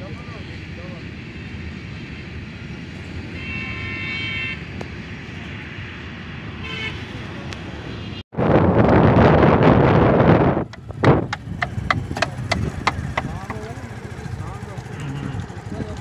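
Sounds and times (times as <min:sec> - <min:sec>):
roadside traffic rumble: 0:00.0 - 0:16.0
vehicle horn: 0:03.2 - 0:04.7, 0:06.6 - 0:07.2, 0:14.8 - 0:15.8.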